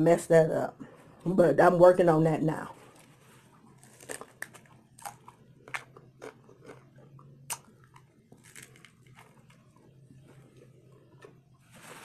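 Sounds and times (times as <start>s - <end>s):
crunching taco shell: 3.0s - 12.0s.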